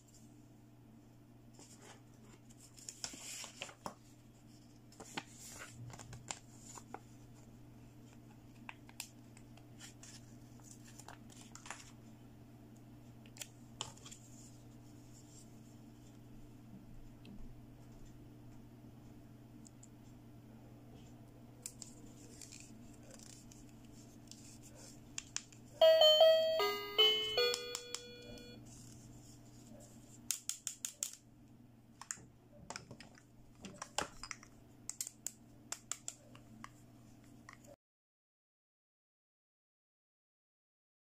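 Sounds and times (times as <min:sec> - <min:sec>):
toy electronic chime: 0:25.8 - 0:28.6.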